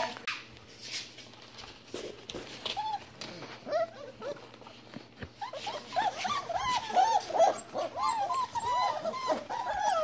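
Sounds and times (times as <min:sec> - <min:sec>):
puppies whimpering: 0:02.6 - 0:10.0.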